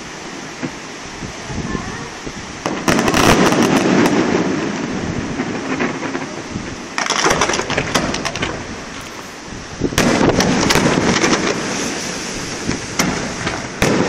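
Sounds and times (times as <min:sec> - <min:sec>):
fireworks crackling: 0:00.0 - 0:14.0
loud firework bang: 0:02.6 - 0:06.4, 0:07.0 - 0:08.7, 0:10.0 - 0:14.0.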